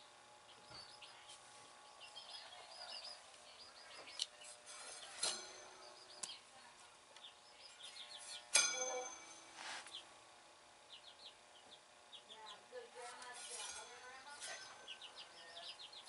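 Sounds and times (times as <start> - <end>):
baby birds peeping: 0.0 - 16.0
sharp metallic clink: 8.4 - 9.5.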